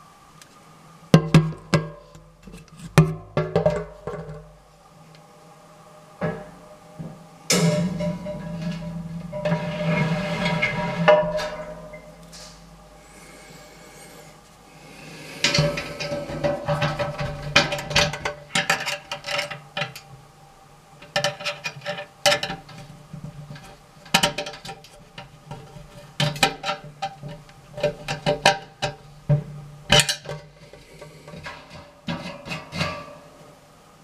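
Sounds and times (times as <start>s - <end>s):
metal mesh screen clinking and scraping: 7.5s - 12.7s, 15.4s - 20.1s, 29.9s - 33.3s.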